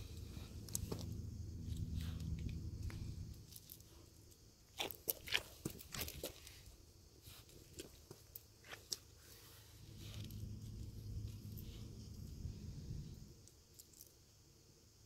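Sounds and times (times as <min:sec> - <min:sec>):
puppy chewing on gravel: 0:04.7 - 0:09.1.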